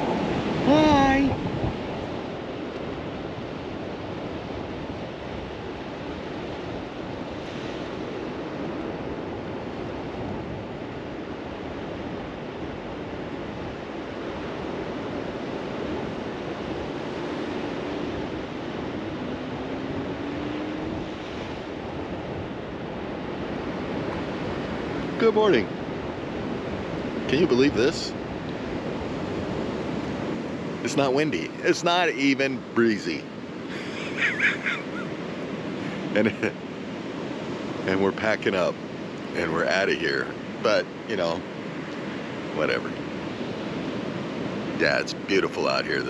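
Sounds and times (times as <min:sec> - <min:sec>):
wind on the microphone: 0:00.0 - 0:31.6
ocean surf breaking: 0:00.0 - 0:46.0.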